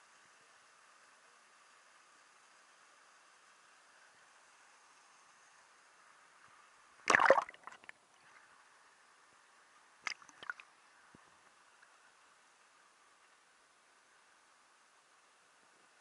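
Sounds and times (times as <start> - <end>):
water splashing: 7.1 - 7.9, 10.0 - 10.6.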